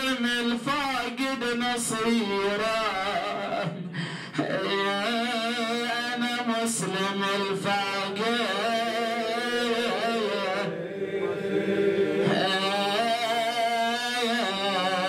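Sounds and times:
man chanting a melody: 0.0 - 3.7, 4.4 - 10.7, 12.3 - 15.0.

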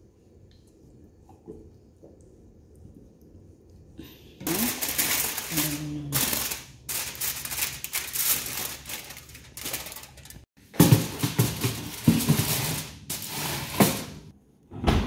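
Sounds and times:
aluminium foil crinkling: 4.4 - 13.9.

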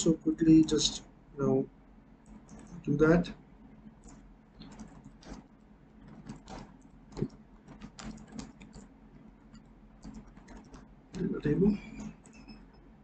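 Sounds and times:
keyboard typing clicks: 2.2 - 2.9, 4.0 - 8.9, 9.5 - 12.8.

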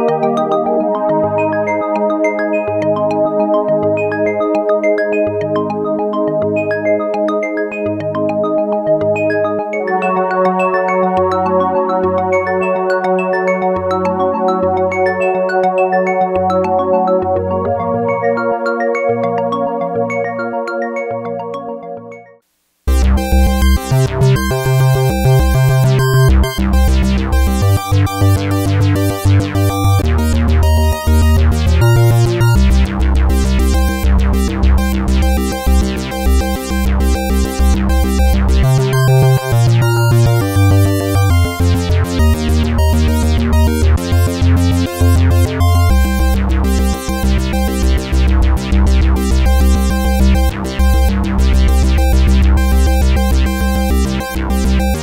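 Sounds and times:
synthesizer playing short repeated notes: 9.2 - 55.0
synthesizer bass notes: 22.9 - 55.0.

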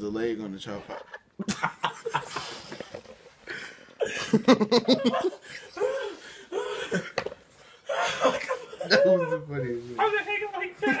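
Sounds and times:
men laughing hard: 1.4 - 9.1.

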